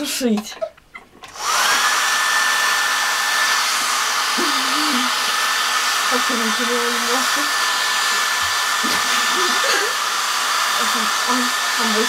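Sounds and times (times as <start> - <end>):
hair dryer running: 1.2 - 12.0.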